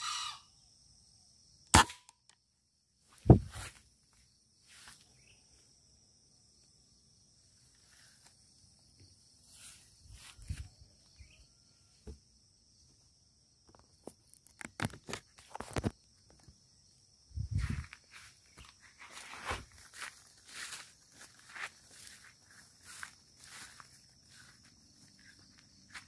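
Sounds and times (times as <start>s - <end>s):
faint high insect drone: 0.0s - 26.0s
footsteps crunching through grass: 3.2s - 3.8s, 4.7s - 5.2s, 9.4s - 10.8s, 17.4s - 26.0s.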